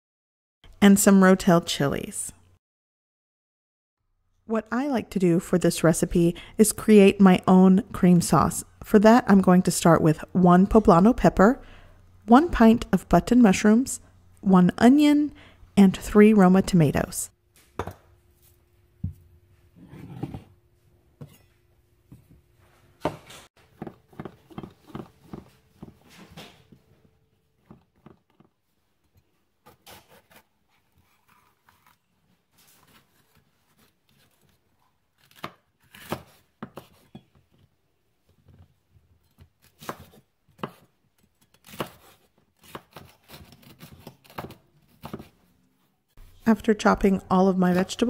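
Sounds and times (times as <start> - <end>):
knife chopping on cutting board: 39.6 - 40.9, 41.6 - 45.4.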